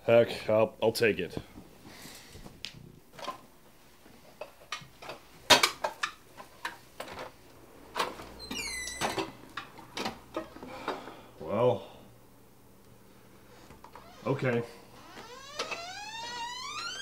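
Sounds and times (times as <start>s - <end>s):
door hinge squeaking: 8.4s - 9.3s, 15.0s - 17.0s.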